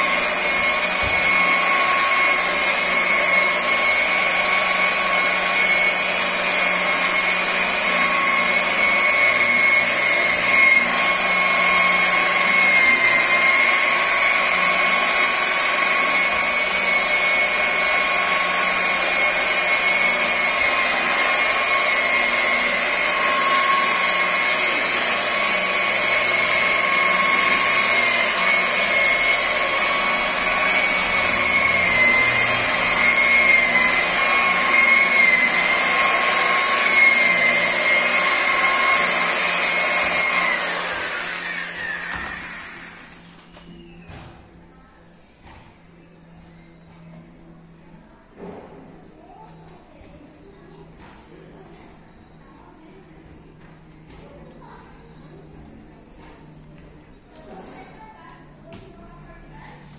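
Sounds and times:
electric polisher whining: 0.0s - 44.3s.

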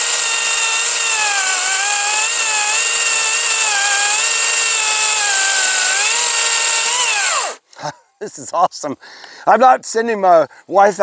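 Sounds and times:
chainsaw cutting log: 0.0s - 7.6s.

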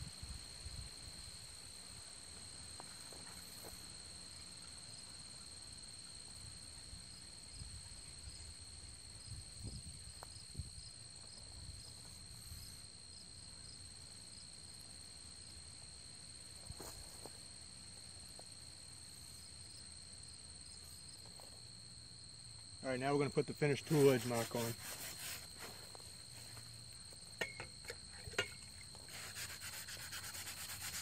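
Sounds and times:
high-pitched insect drone: 23.3s - 31.0s
broom scraping concrete: 23.6s - 26.6s, 28.1s - 31.0s.

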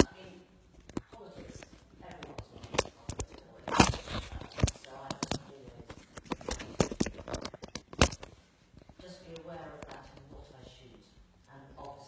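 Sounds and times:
sharp clicks and knocks: 2.1s - 10.4s.

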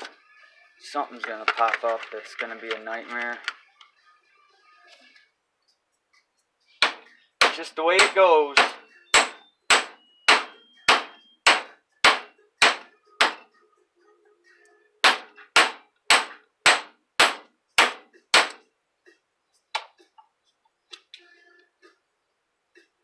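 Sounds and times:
hammer striking steel: 6.8s - 13.4s, 15.0s - 18.6s.

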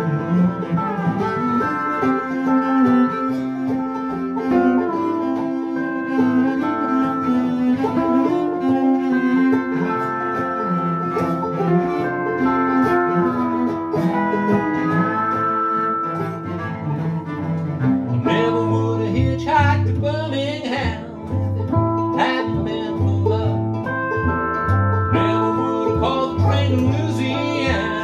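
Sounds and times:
bowed cello: 0.0s - 28.0s
pedal steel guitar sliding notes: 0.0s - 28.0s
strummed resonator guitar: 0.0s - 28.0s
person singing: 18.2s - 24.0s, 25.1s - 28.0s.

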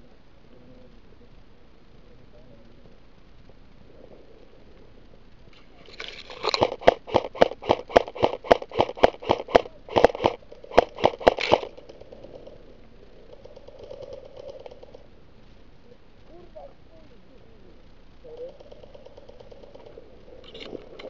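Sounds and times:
airsoft rifle shots: 6.4s - 11.8s.

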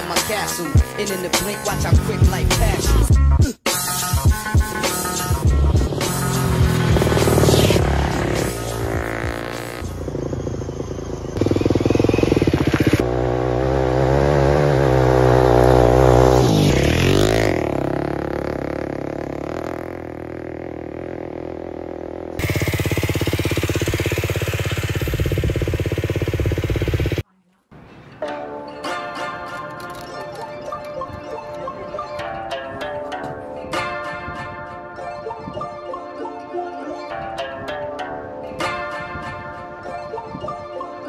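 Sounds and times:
motorcycles revving and passing: 0.0s - 3.1s, 4.6s - 27.2s.

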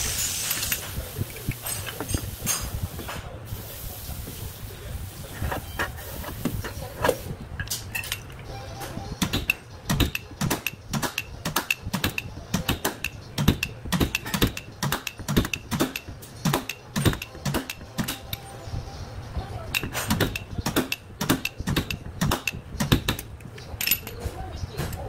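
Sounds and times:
metallic taps on sheet metal: 9.2s - 18.4s, 19.8s - 23.4s.

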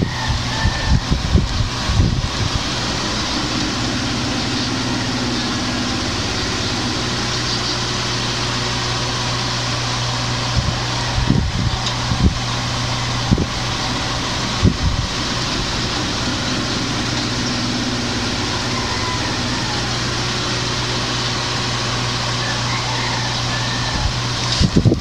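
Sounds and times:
mechanical hum: 0.0s - 25.0s
low bumps: 10.4s - 21.8s.

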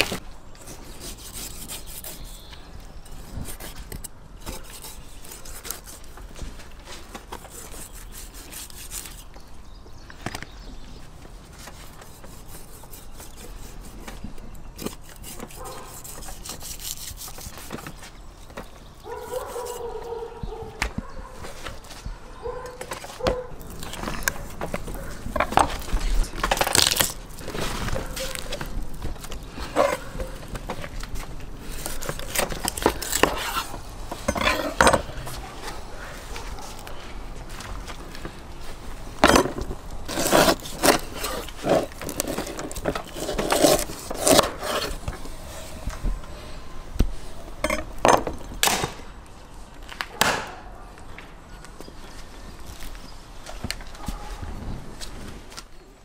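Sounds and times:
blade scraping on wood: 0.0s - 9.4s, 11.5s - 18.2s, 19.1s - 20.2s, 22.8s - 35.8s, 39.2s - 45.8s
rustling: 21.0s - 47.7s.

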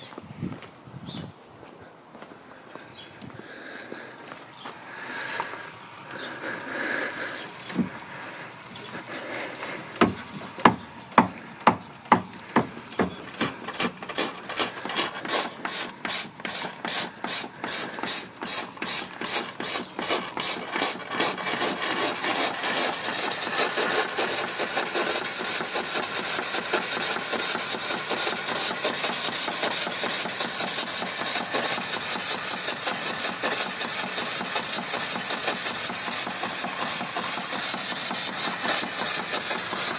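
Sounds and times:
steam hissing: 3.4s - 39.9s
steam engine chuffing: 3.5s - 39.9s.

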